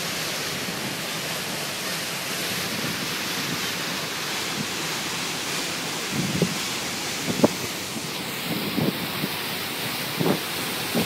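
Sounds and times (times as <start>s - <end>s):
wind and water rushing: 0.0s - 11.0s
wind buffeting microphone: 6.1s - 9.4s, 10.1s - 11.0s.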